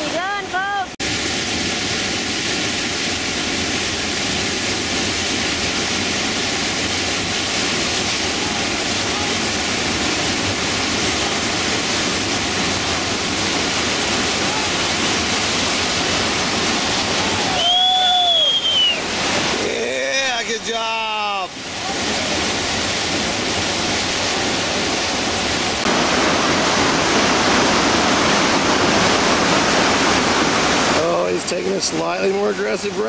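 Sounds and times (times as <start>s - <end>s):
river rapids rushing: 0.0s - 33.0s
person shouting: 17.1s - 18.4s.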